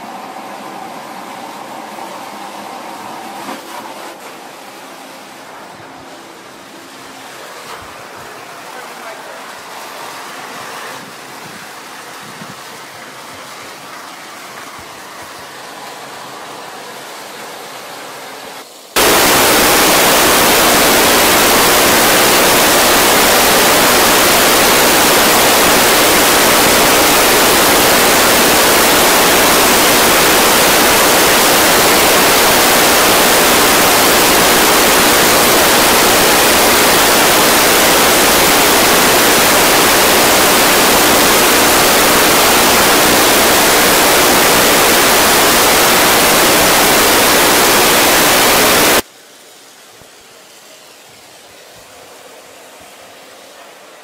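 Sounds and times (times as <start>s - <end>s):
loud rushing hiss: 19.0s - 49.0s.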